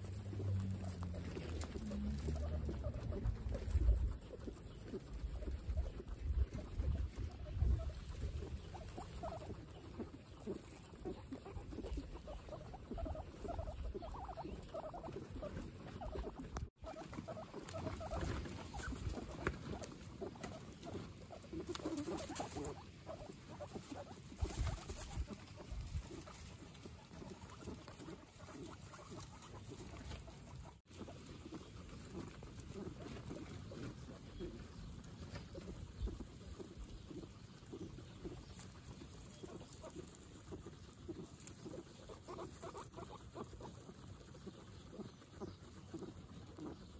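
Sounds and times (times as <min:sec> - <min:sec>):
grass rustling: 0:00.0 - 0:46.9
guinea pigs munching grass: 0:00.0 - 0:46.9.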